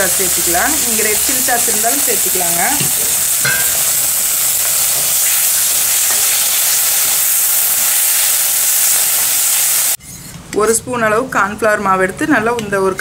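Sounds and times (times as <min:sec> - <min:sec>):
food sizzling in hot oil: 0:00.0 - 0:10.0.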